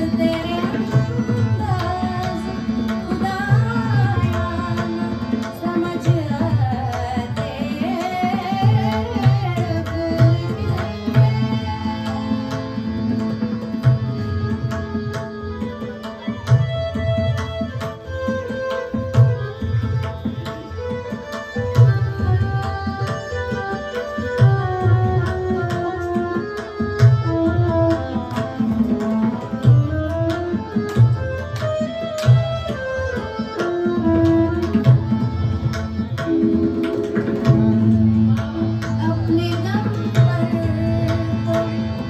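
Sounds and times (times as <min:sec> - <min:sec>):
tabla rhythm: 0:00.0 - 0:42.0
keyboard melody: 0:20.7 - 0:42.0.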